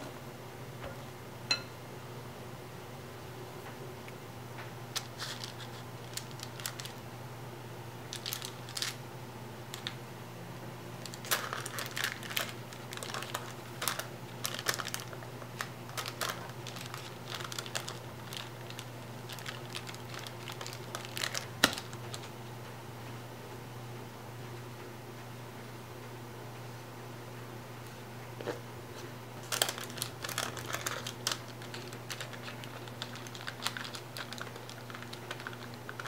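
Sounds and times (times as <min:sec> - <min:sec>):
paper crinkling: 0:04.9 - 0:07.0, 0:08.1 - 0:09.0, 0:11.0 - 0:22.3, 0:29.4 - 0:36.0.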